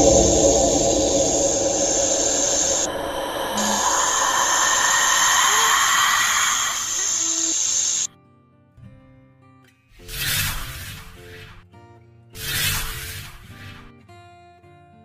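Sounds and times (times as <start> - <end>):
snake hiss: 0.0 - 8.1.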